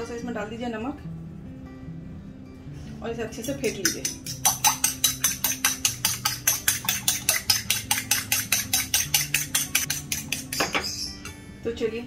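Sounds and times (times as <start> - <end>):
fork beating egg in bowl: 3.4 - 11.0.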